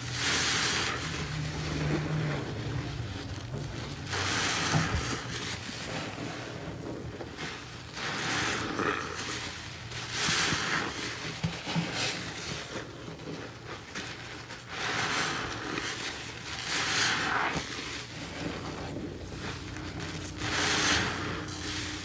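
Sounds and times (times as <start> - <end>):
sponge squelching and sloshing: 0.0 - 22.0.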